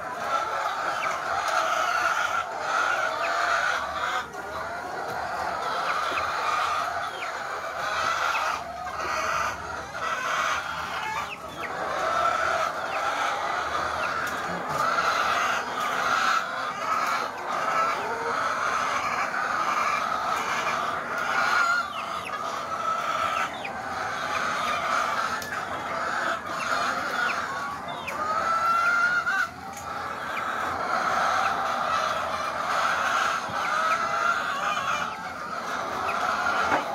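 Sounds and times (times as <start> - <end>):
hens clucking: 0.0 - 36.9.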